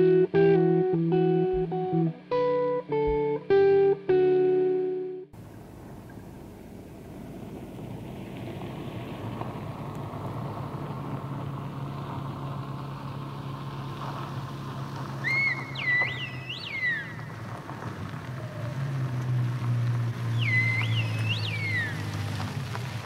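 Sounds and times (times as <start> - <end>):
car engine running: 5.4 - 23.0
person whistling signal: 20.4 - 22.0.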